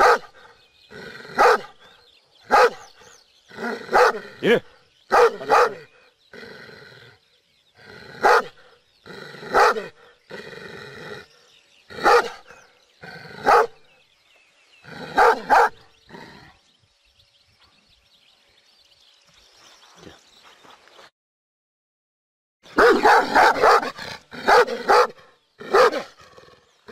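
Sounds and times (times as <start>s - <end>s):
dog barking deeply: 0.0s - 1.8s, 2.5s - 2.9s, 3.6s - 6.0s, 7.9s - 10.0s, 11.9s - 13.9s, 14.8s - 16.4s, 22.7s - 26.4s.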